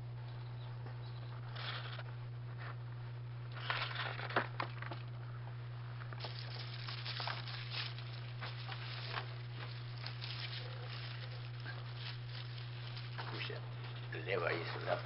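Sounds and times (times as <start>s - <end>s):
low electrical hum: 0.0s - 15.0s
rustling crinkling handling noises: 5.9s - 15.0s.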